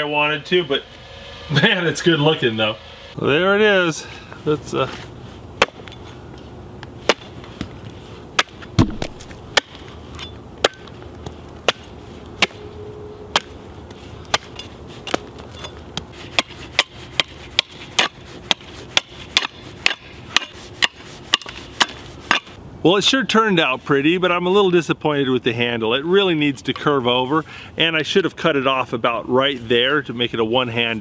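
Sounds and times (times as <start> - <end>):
axe chopping wood: 5.6 - 6.0, 7.0 - 7.8, 8.4 - 9.8, 10.6 - 12.6, 13.3 - 13.6, 14.3 - 15.3, 16.0 - 22.5.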